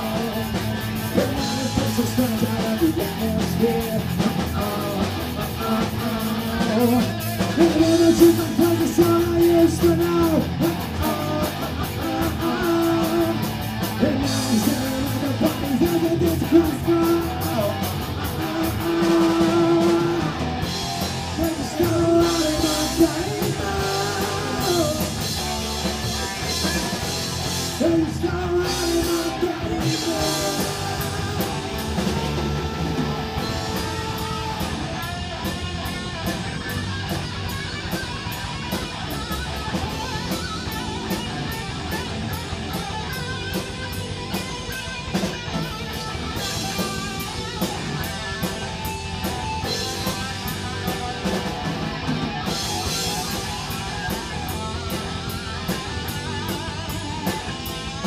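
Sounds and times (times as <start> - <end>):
lead vocal singing: 0.0 - 35.4
drum kit: 0.0 - 58.0
electric guitars: 0.0 - 58.0.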